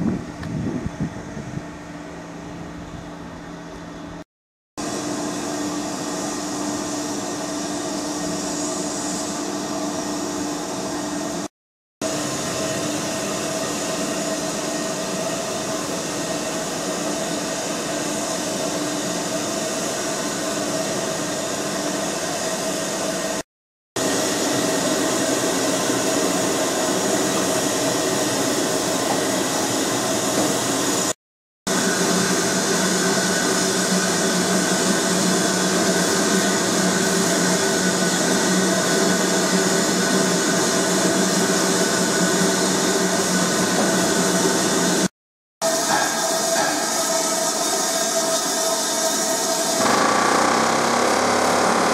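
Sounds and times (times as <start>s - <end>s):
steam hissing: 24.0s - 50.1s.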